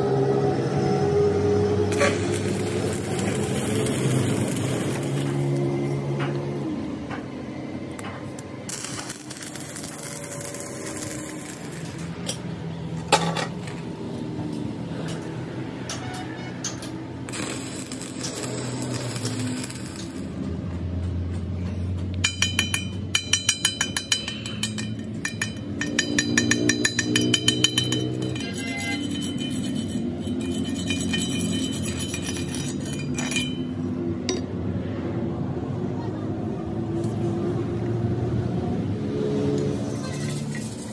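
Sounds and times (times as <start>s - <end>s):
welding arc crackling: 1.9s - 6.1s, 8.4s - 12.6s, 17.2s - 20.6s, 39.8s - 40.9s
sharp metal knock: 22.2s - 28.5s
metallic clinks: 22.2s - 34.4s.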